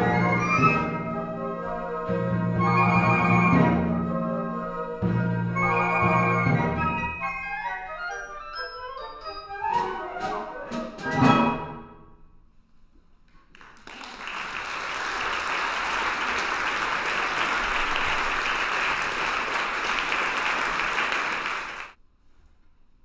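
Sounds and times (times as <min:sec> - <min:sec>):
audience applauding: 0:13.5 - 0:22.0.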